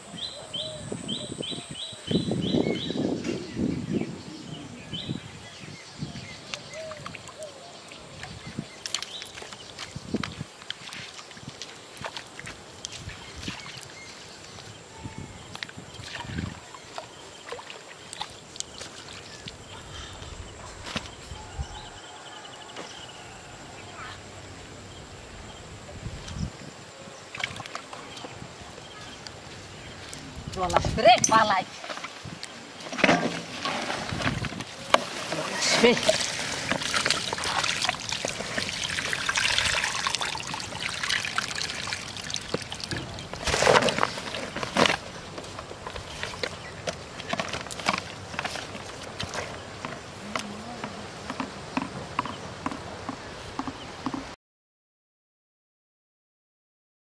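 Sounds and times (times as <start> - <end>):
water splash: 33.2 - 45.2.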